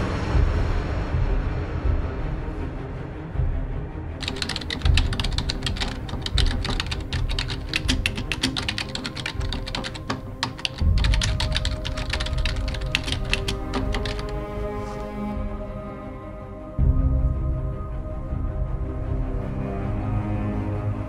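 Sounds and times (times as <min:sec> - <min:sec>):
background music with low tones: 0:00.0 - 0:21.0
keyboard typing clicks: 0:04.2 - 0:14.8.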